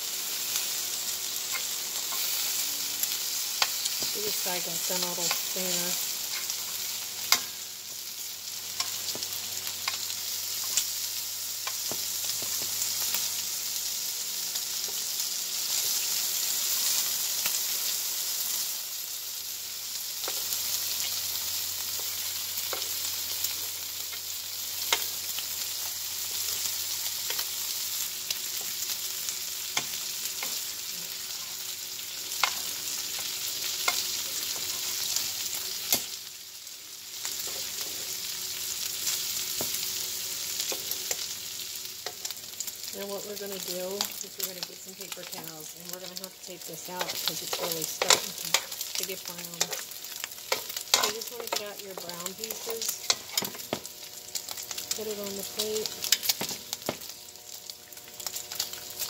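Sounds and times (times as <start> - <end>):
bacon sizzling in a skillet: 0.0 - 59.0
metal tongs tapping a pan: 7.3 - 7.6, 32.4 - 32.7, 46.8 - 53.9.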